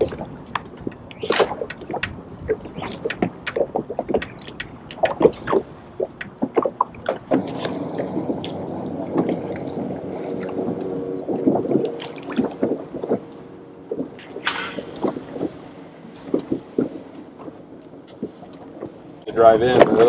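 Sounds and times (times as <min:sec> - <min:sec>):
steady low hum: 0:00.0 - 0:20.0
waves splashing against boat hull: 0:00.0 - 0:20.0.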